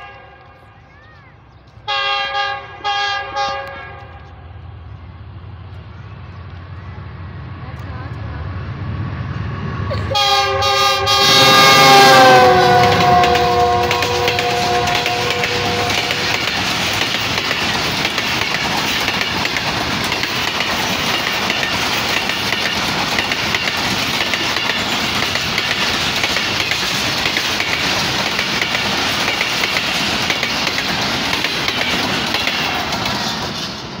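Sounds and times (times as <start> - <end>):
train coaches rushing past: 0.0 - 34.0
wheels clacking over rail joints: 11.2 - 34.0.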